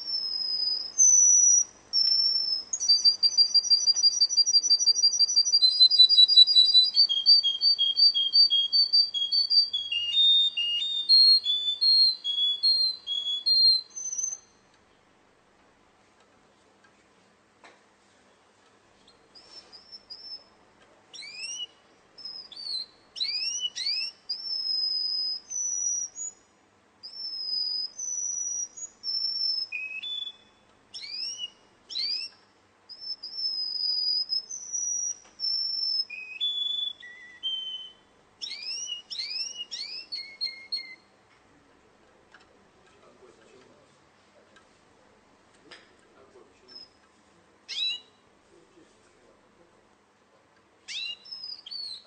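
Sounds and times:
canary singing: 0.0 - 14.8, 19.0 - 41.2, 46.6 - 48.3, 50.8 - 52.0.

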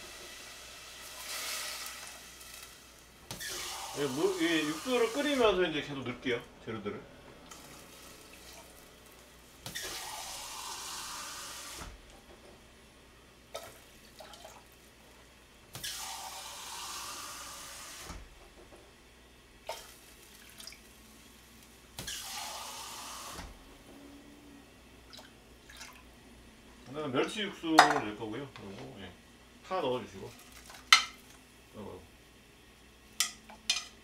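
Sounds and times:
kitchen faucet running: 0.0 - 6.4, 7.4 - 12.0, 15.7 - 18.2, 19.7 - 23.6.

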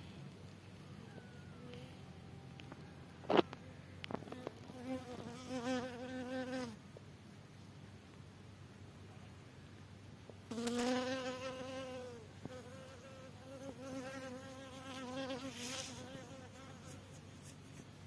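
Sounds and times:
flying insect buzzing: 10.5 - 17.2.

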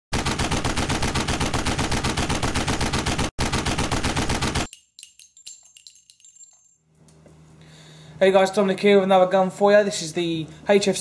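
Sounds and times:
machine-gun fire: 0.1 - 4.7
faint metallic clinks: 4.7 - 7.1.

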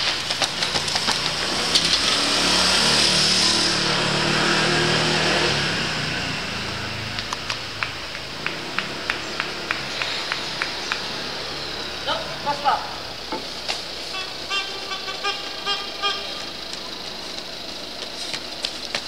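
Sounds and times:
running shoes slapping on cobblestones: 0.0 - 2.1, 7.0 - 11.7, 13.3 - 14.0, 16.3 - 19.0
motor vehicle passing: 0.0 - 19.0.

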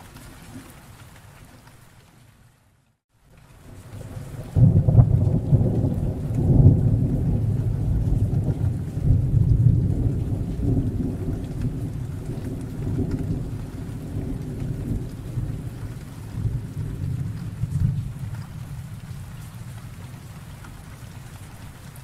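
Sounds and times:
steady rain: 0.0 - 22.0
deep thunder rumble: 4.0 - 22.0.

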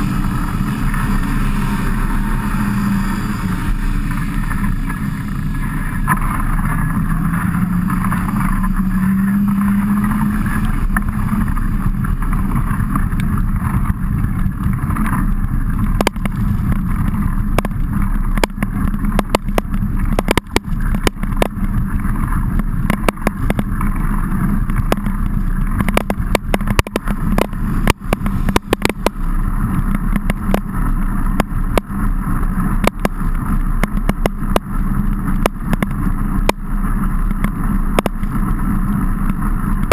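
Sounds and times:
low hum rising in pitch: 0.0 - 39.9
low rumble of wind and tyres: 0.0 - 39.9
sharp clicks and knocks on camera: 11.9 - 32.0, 32.8 - 39.9.

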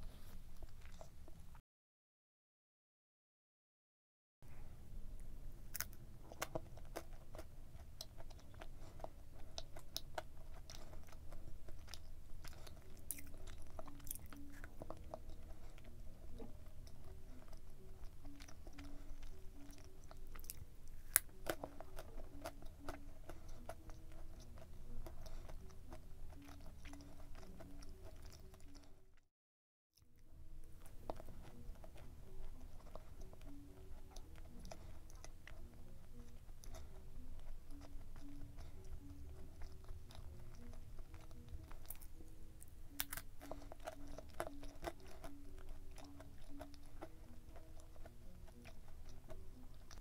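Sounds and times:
close-up chewing: 0.0 - 1.6, 5.2 - 29.2, 30.0 - 50.0
wet mouth clicks: 42.9 - 50.0.

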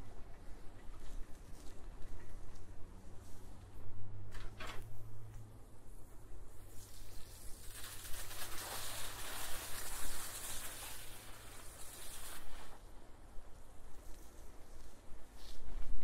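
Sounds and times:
bicycle tyres on gravel: 6.4 - 16.0.

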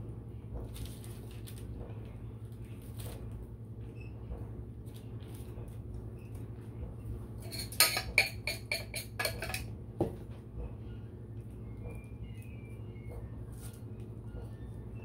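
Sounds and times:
knife scraping metal saucepan: 7.4 - 9.7.

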